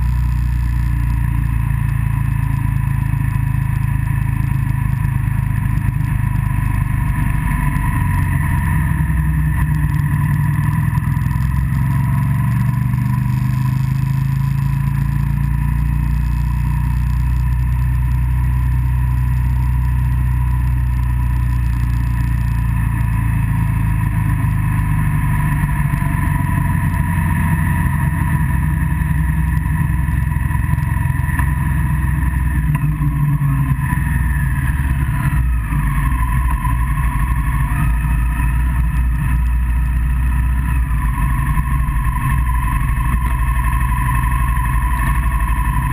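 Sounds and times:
motorcycle engine running: 0.0s - 45.9s.

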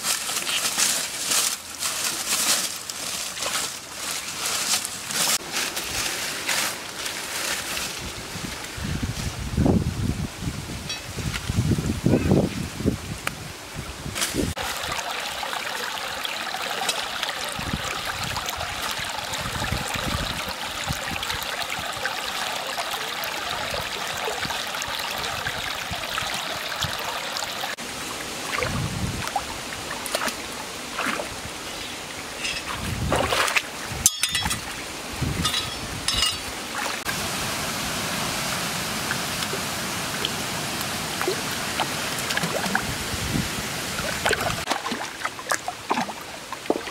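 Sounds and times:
stream running over rocks: 0.0s - 46.9s
water splashes and knocks: 14.2s - 27.8s, 28.4s - 31.4s, 32.4s - 37.2s, 39.0s - 43.0s, 44.0s - 46.9s.

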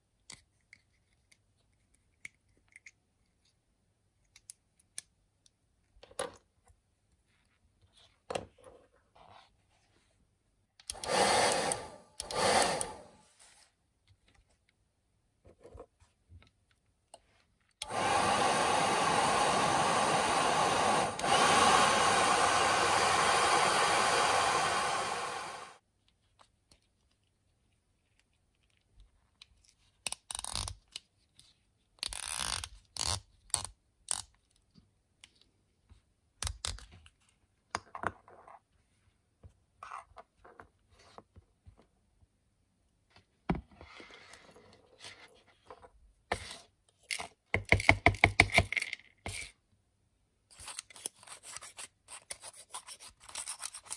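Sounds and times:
hair dryer blowing: 10.9s - 13.2s, 17.8s - 25.8s.

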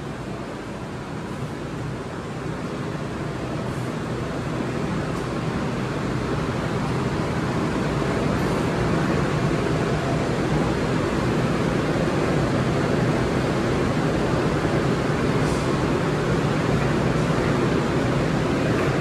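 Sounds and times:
train engine rumble and hiss: 0.0s - 19.0s.

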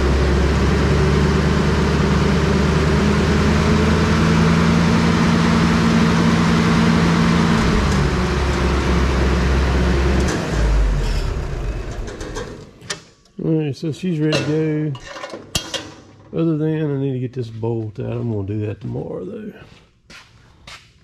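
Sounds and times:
wood chipper engine running: 0.0s - 12.8s.

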